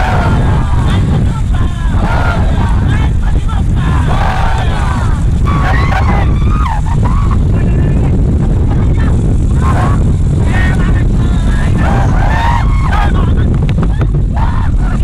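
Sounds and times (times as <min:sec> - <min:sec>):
people shouting: 0:00.0 - 0:07.6, 0:09.5 - 0:15.0
white-water rapid rumbling: 0:00.0 - 0:15.0.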